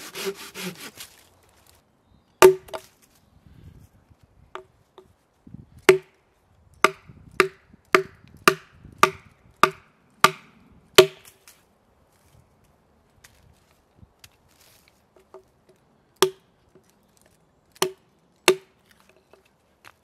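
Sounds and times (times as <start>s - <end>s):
hatchet splitting wood: 0.0s - 1.0s, 2.4s - 2.9s, 5.8s - 6.2s, 6.8s - 11.4s, 16.2s - 16.5s, 17.7s - 19.2s.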